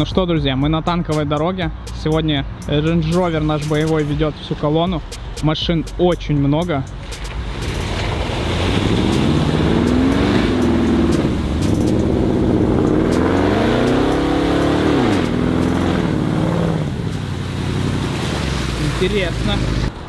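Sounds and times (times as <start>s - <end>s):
engine revving under load: 7.1s - 20.0s.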